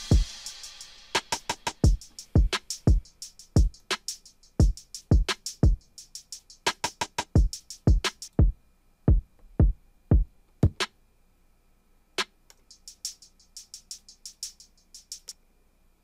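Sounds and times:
quick hi-hats: 0:00.0 - 0:08.5, 0:12.2 - 0:15.4
deep kick drums: 0:01.8 - 0:03.8, 0:07.4 - 0:10.8.

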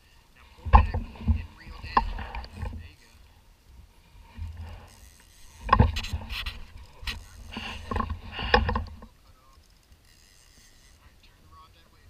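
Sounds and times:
wind rumbling on microphone: 0:00.5 - 0:04.8
gear knocking and rattling in boat: 0:00.6 - 0:03.1, 0:04.1 - 0:10.8.

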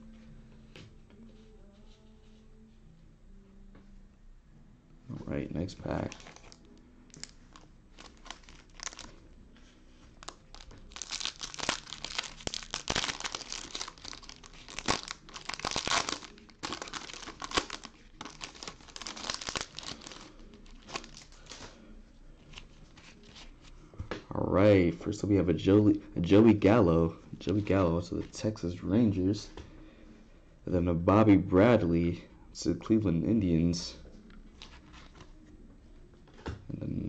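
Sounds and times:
foil wrapper crinkling and tearing: 0:06.0 - 0:09.2, 0:10.2 - 0:21.7.

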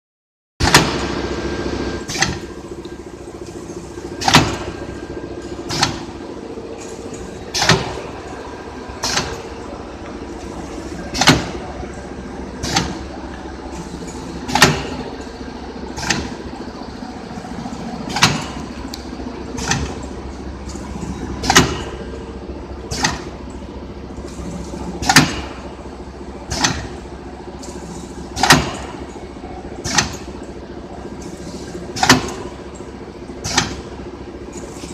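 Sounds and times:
machine motor hum: 0:00.6 - 0:34.9
sharp mechanical clack: 0:04.2 - 0:04.9, 0:09.0 - 0:09.5, 0:11.1 - 0:11.6, 0:13.7 - 0:15.3, 0:18.1 - 0:22.1, 0:25.0 - 0:25.7, 0:28.4 - 0:29.2, 0:29.8 - 0:30.4, 0:32.0 - 0:32.6, 0:33.4 - 0:33.9.

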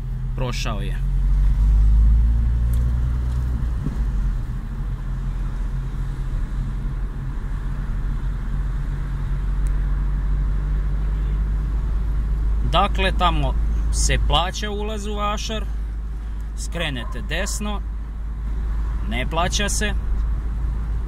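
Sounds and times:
car engine and tyre noise: 0:00.0 - 0:21.0.

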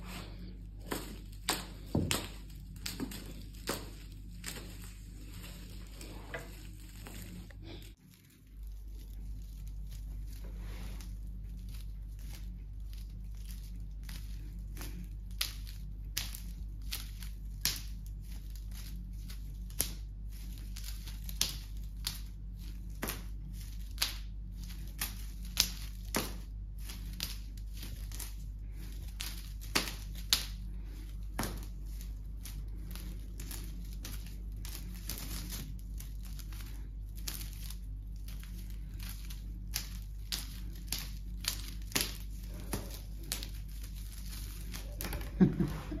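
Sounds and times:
ribbon streamers clicking and crinkling: 0:00.0 - 0:46.0
steady low hum: 0:00.0 - 0:46.0.

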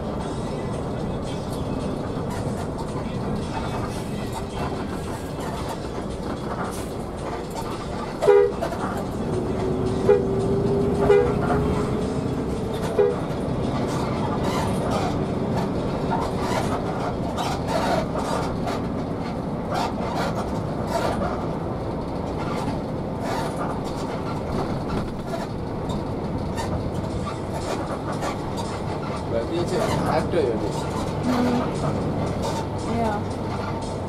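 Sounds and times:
coach engine and road noise: 0:00.0 - 0:34.0
horn blaring: 0:08.2 - 0:08.7, 0:09.8 - 0:12.2, 0:12.8 - 0:13.4.

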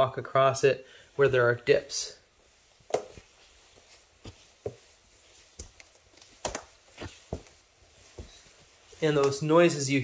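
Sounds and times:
floor planks popping and clicking: 0:05.6 - 0:07.5.

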